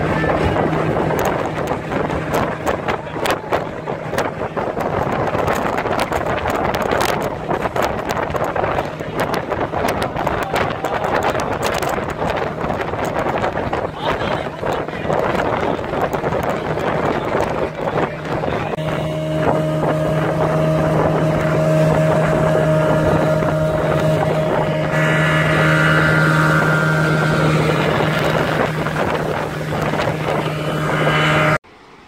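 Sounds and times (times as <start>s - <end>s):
outboard motor running: 0.0s - 31.6s
wind noise on microphone: 0.0s - 31.6s.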